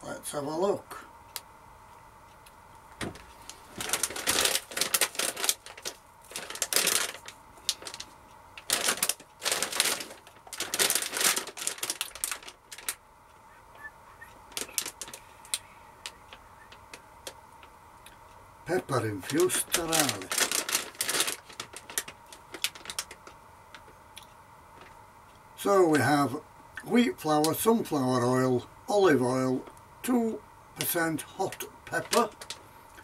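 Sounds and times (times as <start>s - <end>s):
plastic bag crinkling: 3.0s - 13.0s, 14.5s - 17.4s, 18.7s - 23.9s, 31.4s - 32.7s.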